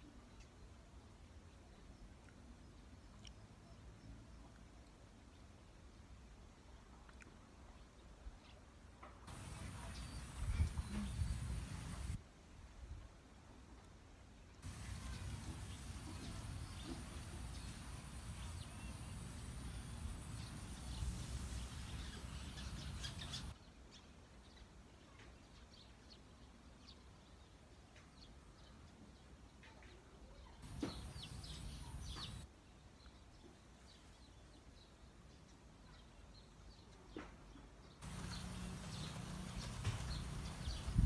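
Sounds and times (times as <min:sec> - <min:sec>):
low rumbling noise: 0:38.0 - 0:41.0.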